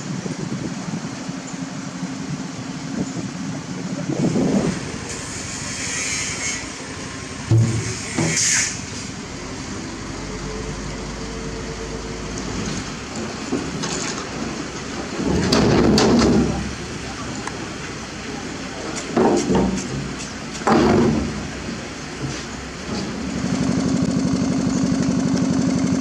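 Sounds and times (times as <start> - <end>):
crane diesel engine rumbling: 0.0 - 26.0
sharp knocks: 19.2 - 21.4.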